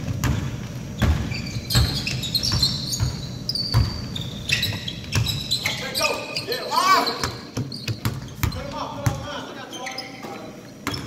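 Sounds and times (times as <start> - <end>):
basketball bouncing on hardwood: 0.0 - 4.1, 7.2 - 9.2
sneaker squeaks: 0.0 - 11.0.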